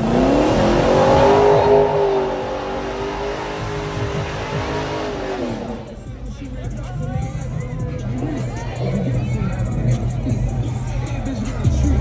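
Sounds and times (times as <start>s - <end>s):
tyres spinning rushing noise: 0.0s - 6.1s
car engine revving: 0.0s - 6.2s.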